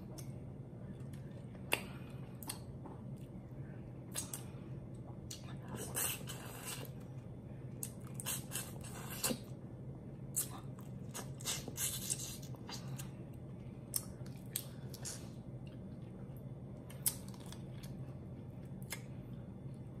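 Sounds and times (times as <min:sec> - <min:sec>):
person chewing and sucking lobster: 0:05.2 - 0:07.1, 0:07.7 - 0:09.6, 0:10.3 - 0:19.8.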